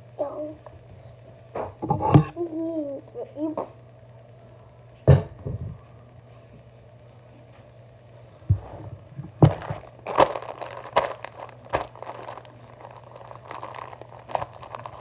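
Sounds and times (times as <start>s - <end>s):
plastic packaging crinkling: 9.3s - 15.0s.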